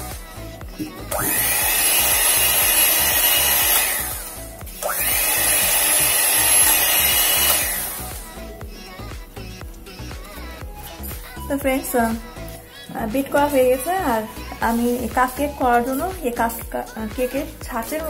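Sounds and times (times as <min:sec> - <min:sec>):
electric hand mixer whine: 0:00.0 - 0:08.4.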